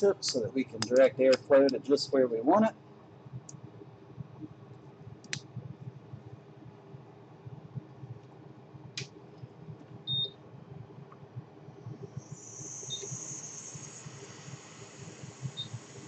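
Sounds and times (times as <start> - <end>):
high airflow hiss: 0.0 - 2.8, 11.8 - 16.0
low steady hum: 0.0 - 16.0.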